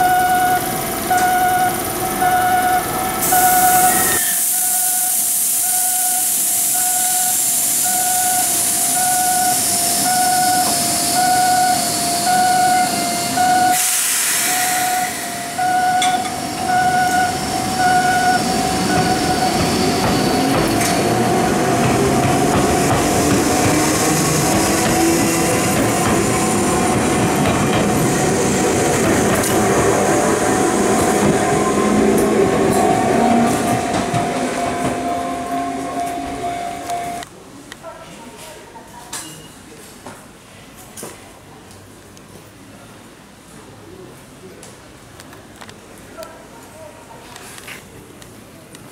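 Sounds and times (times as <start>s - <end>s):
level crossing alarm tone: 0.0s - 20.6s, 31.5s - 37.2s
electric train passing: 0.0s - 37.2s
train wheels on rails: 0.0s - 37.2s.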